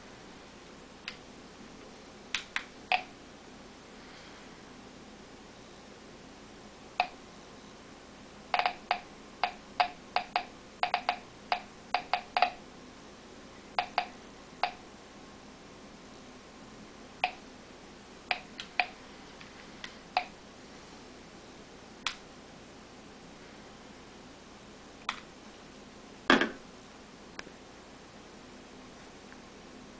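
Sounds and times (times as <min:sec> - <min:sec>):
geiger counter clicking: 0:02.3 - 0:03.1, 0:07.0 - 0:07.2, 0:08.5 - 0:12.6, 0:13.8 - 0:14.8, 0:17.2 - 0:17.4, 0:18.3 - 0:19.0, 0:20.1 - 0:20.4.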